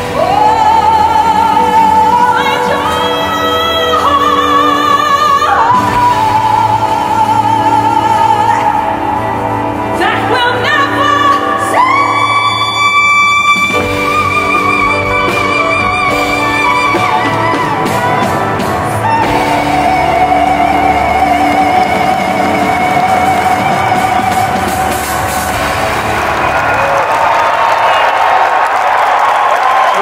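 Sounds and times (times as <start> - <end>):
woman singing with vibrato: 0.0 - 25.6
sustained instrumental accompaniment: 0.0 - 27.5.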